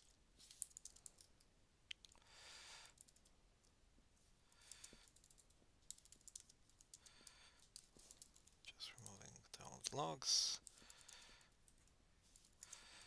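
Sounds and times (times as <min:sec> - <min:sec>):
typing on computer keyboard: 0:00.0 - 0:01.3, 0:04.6 - 0:09.2, 0:10.6 - 0:11.9.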